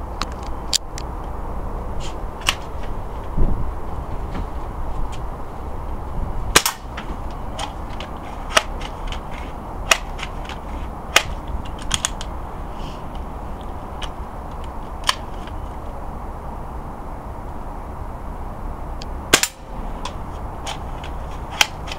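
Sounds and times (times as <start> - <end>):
air rifle firing crack: 6.5 - 7.7, 19.3 - 19.8.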